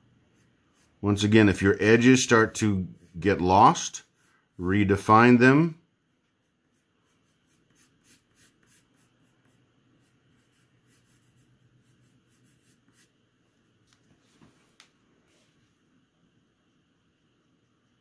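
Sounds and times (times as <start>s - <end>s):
pencil scratching on paper: 0.2s - 5.0s, 6.2s - 13.3s.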